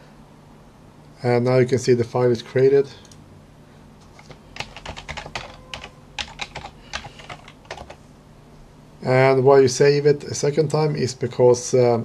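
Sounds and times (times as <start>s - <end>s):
keyboard keys clicking: 4.0s - 8.0s.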